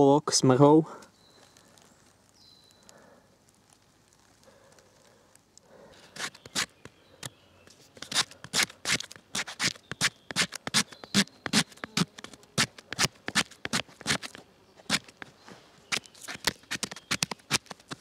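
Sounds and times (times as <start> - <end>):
knife scraping bark: 6.0 - 18.0.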